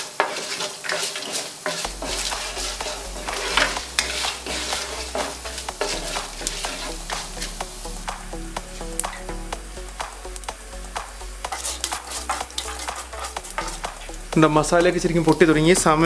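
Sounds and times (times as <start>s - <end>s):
plastic spatula scraping pan: 0.0s - 7.6s, 11.5s - 14.6s
spices sizzling in oil: 0.0s - 16.0s.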